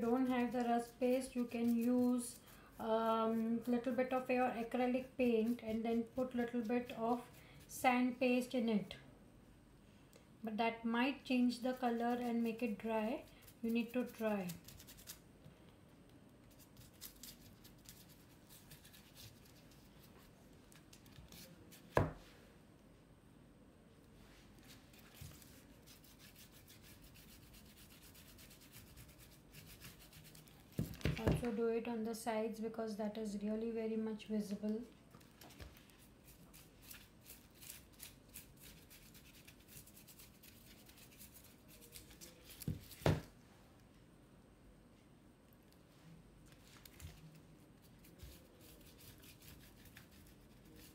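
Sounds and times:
paintbrush scratching and tapping: 0:00.0 - 0:02.4
canvas thud on table: 0:30.8 - 0:31.5, 0:42.7 - 0:43.3.

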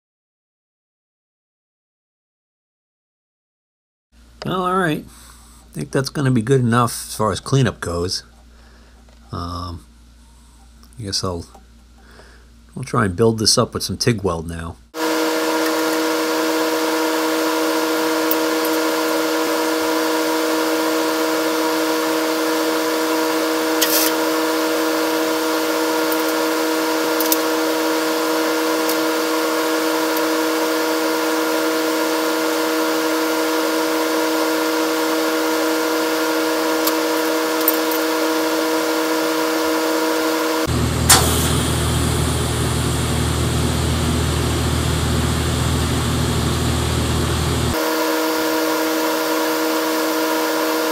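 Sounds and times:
electrical hum: 0:04.2 - 0:50.9
welding arc buzzing: 0:15.0 - 0:50.9
welding arc striking crack: 0:23.8 - 0:24.2, 0:41.0 - 0:41.8.

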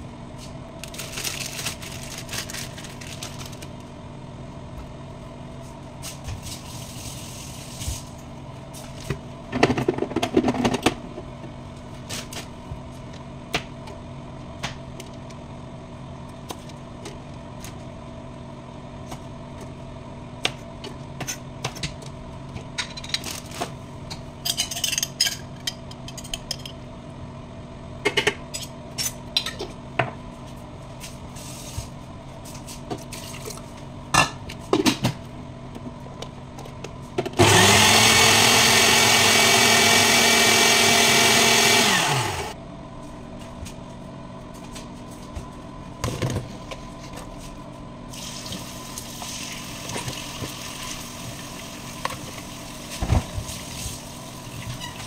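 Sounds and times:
steady hum: 0:26.6 - 0:49.3.

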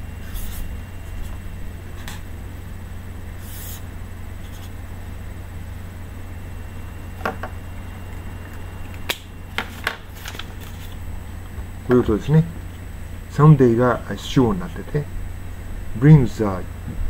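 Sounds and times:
steady low hum: 0:00.0 - 0:17.0
paper rustling: 0:09.6 - 0:11.0.

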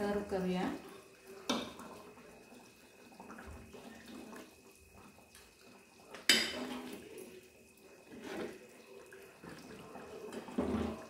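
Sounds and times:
gravy sloshing and dribbling: 0:00.0 - 0:11.0.

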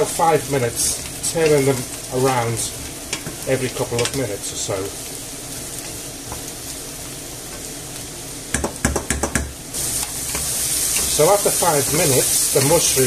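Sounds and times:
mushrooms sizzling in oil: 0:00.0 - 0:13.0
spatulas knocking against pan: 0:08.5 - 0:09.5
wooden spatulas stirring: 0:09.9 - 0:13.0.

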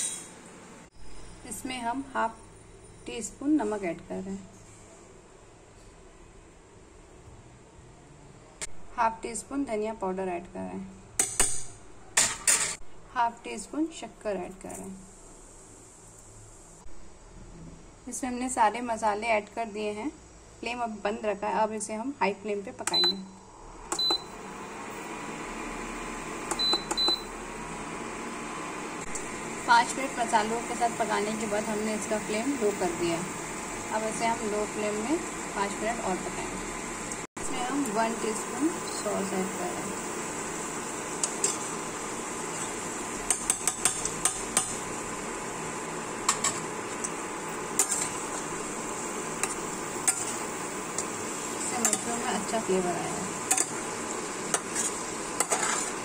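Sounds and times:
oil sizzling in a pan: 0:23.6 - 0:56.0.

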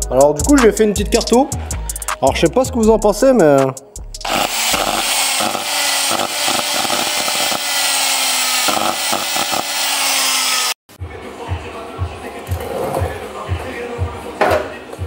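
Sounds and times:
angle grinder motor whine: 0:04.2 - 0:10.8.

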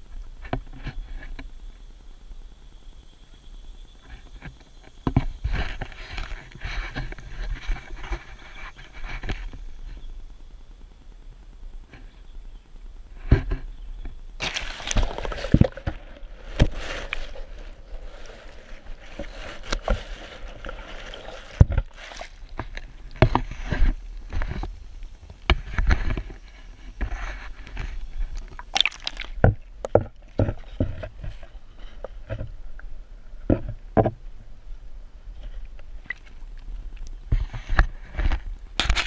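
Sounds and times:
muffled underwater sloshing: 0:14.4 - 0:34.1.

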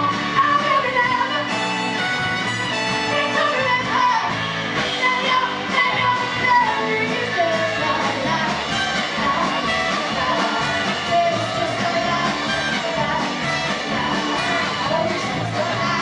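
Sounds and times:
woman singing: 0:00.0 - 0:02.0, 0:03.0 - 0:16.0
bass guitar: 0:00.0 - 0:16.0
drums: 0:00.0 - 0:16.0
electric guitar: 0:00.0 - 0:16.0
horn playing: 0:01.3 - 0:03.8.

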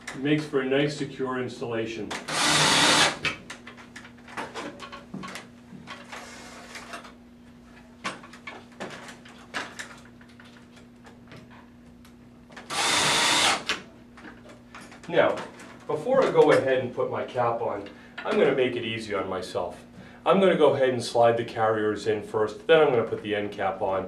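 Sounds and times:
cordless drill driving screw: 0:02.3 - 0:03.2, 0:12.7 - 0:13.8.

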